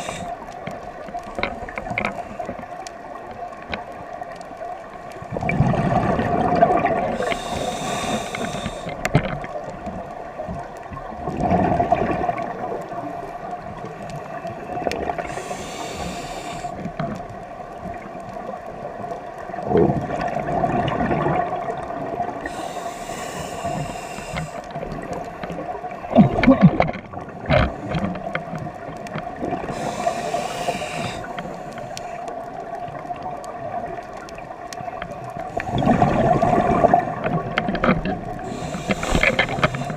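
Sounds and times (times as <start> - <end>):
exhaled bubbles rushing underwater: 5.2 - 17.0, 17.9 - 22.8, 23.4 - 28.0, 28.6 - 31.6, 32.4 - 39.9.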